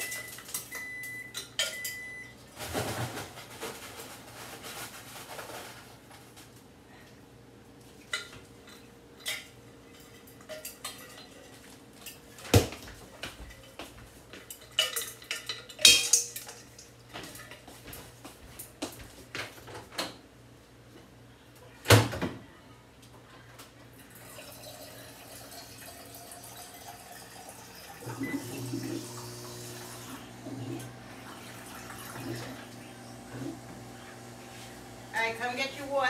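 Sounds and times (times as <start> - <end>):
dishes and cutlery clattering: 1.4 - 2.1, 8.1 - 12.2, 13.4 - 17.7.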